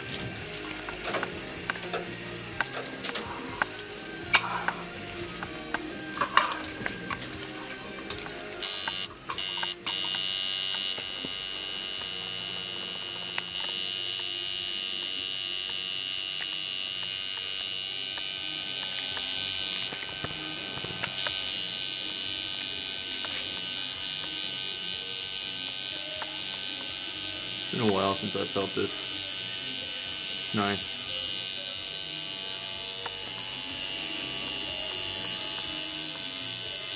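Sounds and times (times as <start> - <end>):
tattoo machine buzzing: 0.0 - 36.9.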